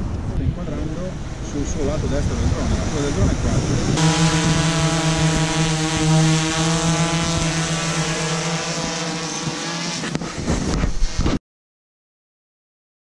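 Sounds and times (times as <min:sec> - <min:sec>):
drone rotors whining: 0:03.9 - 0:11.3.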